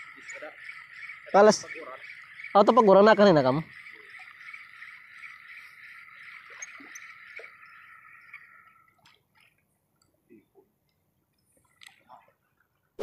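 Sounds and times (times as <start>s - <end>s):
high-pitched chirring animal chorus: 0.0s - 9.5s
faint ticks: 6.5s - 12.7s.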